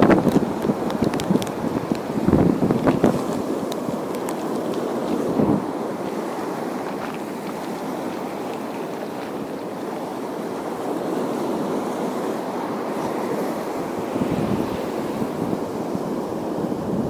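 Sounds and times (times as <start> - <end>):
waves washing against shore: 0.0 - 17.0
wind on microphone: 0.0 - 17.0.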